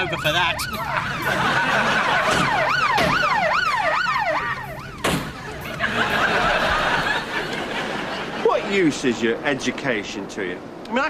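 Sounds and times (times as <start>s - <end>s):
police siren wailing: 0.0s - 8.4s.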